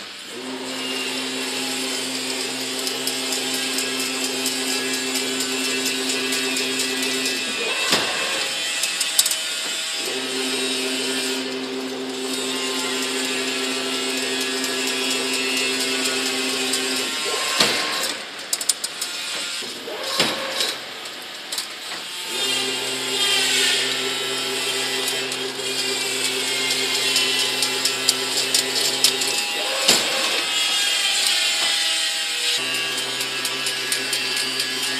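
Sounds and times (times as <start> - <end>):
motor hum: 0.3 - 18.7, 19.6 - 34.9
mechanical clatter: 0.3 - 34.9.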